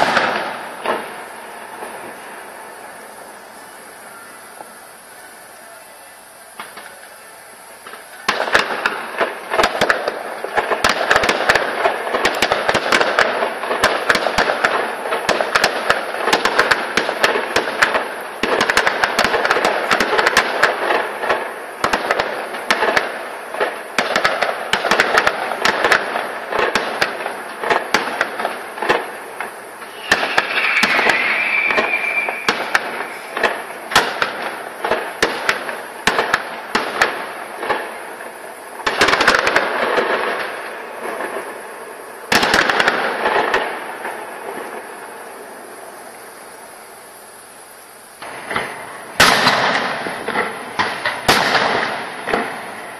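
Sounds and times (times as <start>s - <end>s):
fireworks crackling and banging: 0.0s - 52.9s
high whistling tone: 29.8s - 33.8s.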